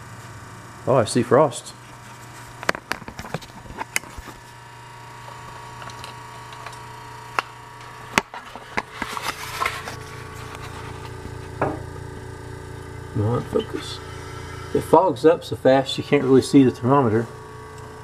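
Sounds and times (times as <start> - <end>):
refrigerator compressor hum: 0.0 - 18.0.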